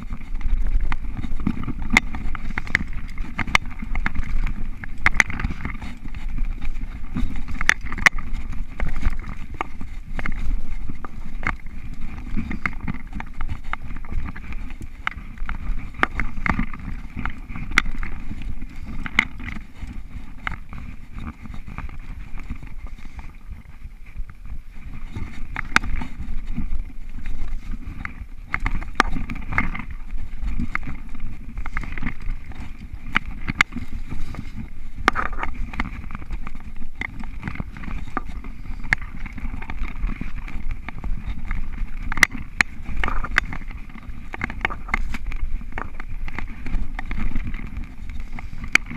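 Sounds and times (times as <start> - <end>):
bike clicks and knocks: 0.0 - 48.9
bike tyres rumbling on dirt: 0.0 - 48.9.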